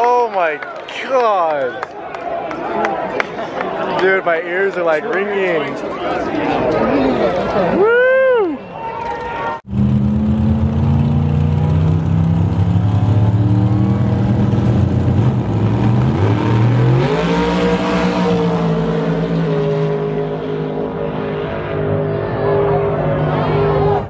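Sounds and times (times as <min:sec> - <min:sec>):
drag race car engines: 0:09.1 - 0:24.0.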